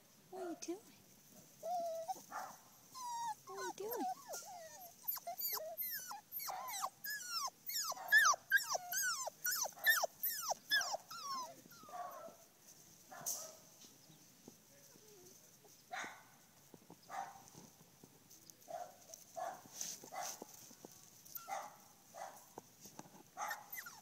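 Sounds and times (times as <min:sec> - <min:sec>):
puppies yelping and whining: 0:01.6 - 0:02.3, 0:02.9 - 0:11.9, 0:23.4 - 0:24.0.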